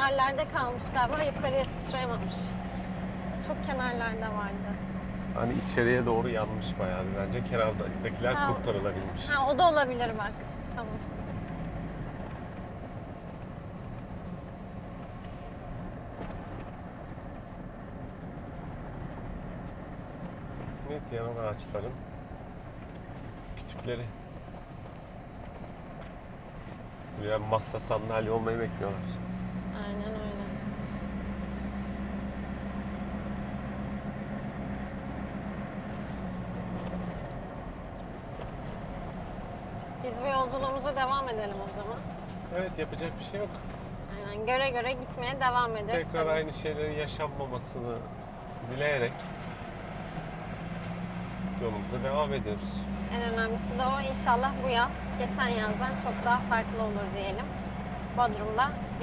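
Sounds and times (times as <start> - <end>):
car road and engine noise: 0.0 - 59.0.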